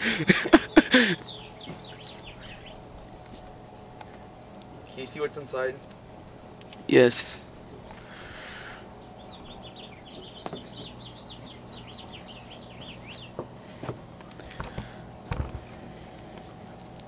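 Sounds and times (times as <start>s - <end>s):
microwave oven humming: 0.0s - 17.0s
small bird twittering: 1.1s - 2.8s, 9.0s - 13.4s.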